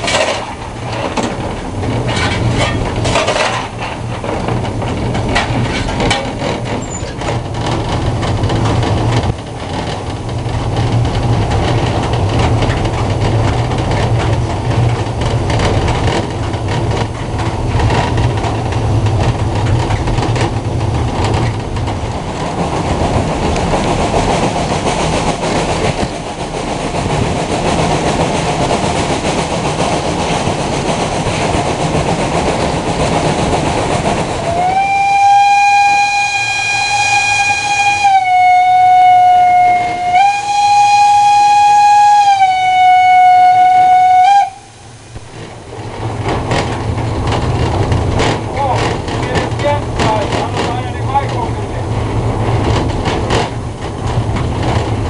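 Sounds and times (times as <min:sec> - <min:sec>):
locomotive rumble: 0:00.0 - 0:55.0
rail clatter: 0:00.0 - 0:55.0
rushing passing air: 0:16.3 - 0:34.8, 0:44.5 - 0:49.1.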